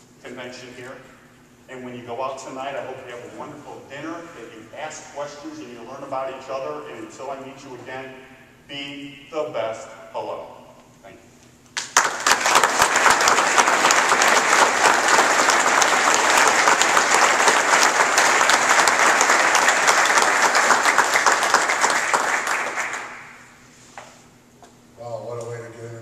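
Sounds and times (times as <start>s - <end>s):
audience applauding: 11.8s - 23.5s.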